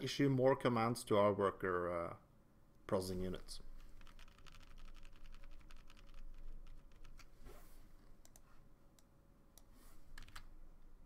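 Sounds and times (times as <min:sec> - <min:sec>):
computer keyboard clicking: 0:04.0 - 0:07.3, 0:10.2 - 0:10.5.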